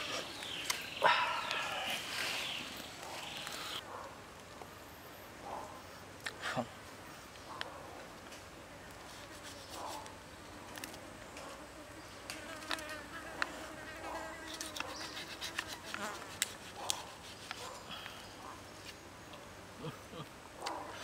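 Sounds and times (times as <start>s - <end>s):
fly buzzing: 11.6s - 17.7s.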